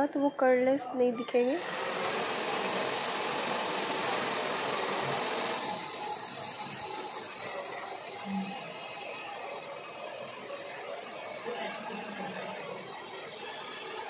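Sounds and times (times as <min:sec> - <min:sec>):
hair dryer blowing: 0:01.3 - 0:14.0.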